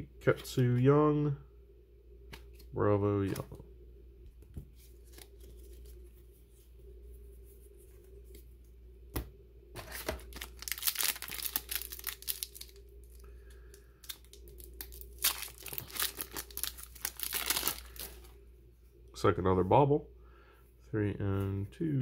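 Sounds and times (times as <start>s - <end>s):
wrapper tearing and crinkling: 9.8s - 13.2s, 14.0s - 18.3s.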